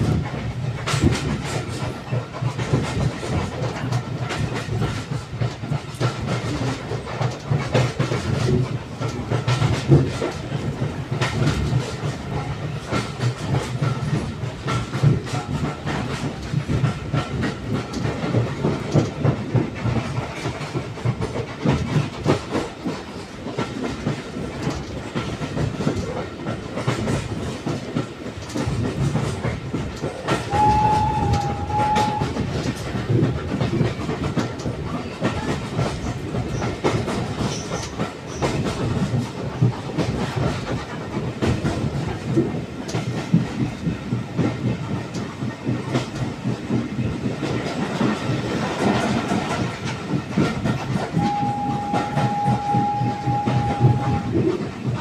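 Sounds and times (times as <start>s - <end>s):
train rumble: 0.0s - 55.0s
wheels clicking over rail joints: 0.0s - 55.0s
steam locomotive whistle: 30.5s - 32.5s, 51.2s - 54.5s.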